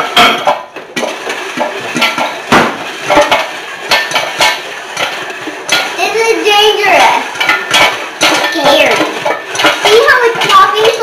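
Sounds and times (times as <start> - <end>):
pot and lid clinking: 0.0 - 6.0, 7.3 - 11.0
popcorn popping in a pot: 0.0 - 11.0.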